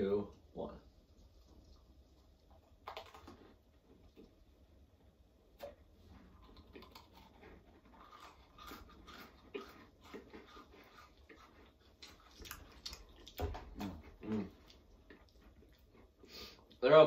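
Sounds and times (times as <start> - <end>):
crunching of wafer cookies: 2.6 - 4.3, 6.1 - 16.1.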